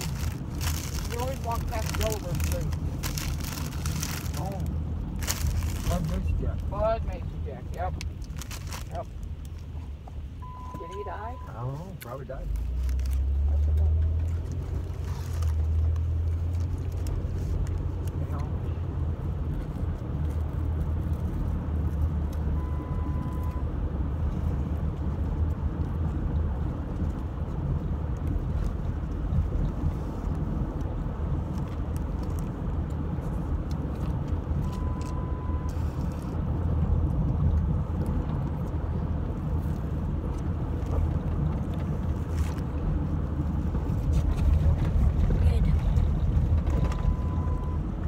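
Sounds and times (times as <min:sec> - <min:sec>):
low rumble of a car: 0:00.0 - 0:48.0
faint short beeps: 0:10.4 - 0:11.6.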